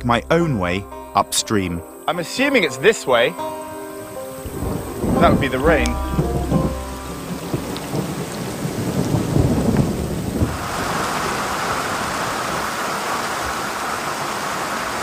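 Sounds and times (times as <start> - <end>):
thunder rumbling: 4.4 - 12.4
heavy rain on water: 4.4 - 15.0.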